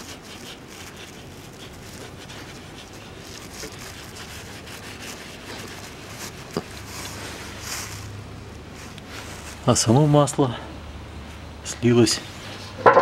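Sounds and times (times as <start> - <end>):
cloth rag rubbing metal: 0.0 - 8.1.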